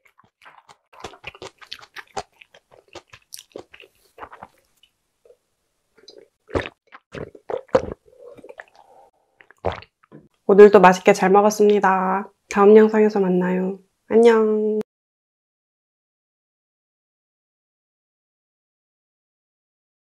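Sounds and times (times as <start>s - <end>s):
close chewing with mouth clicks: 0.0s - 5.4s, 6.0s - 10.1s
loud gulps of water: 6.5s - 9.9s.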